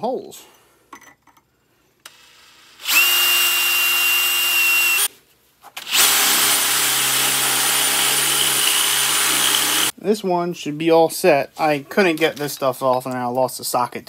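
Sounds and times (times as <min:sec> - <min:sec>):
drill boring through steel: 0:02.1 - 0:05.1, 0:05.9 - 0:09.9.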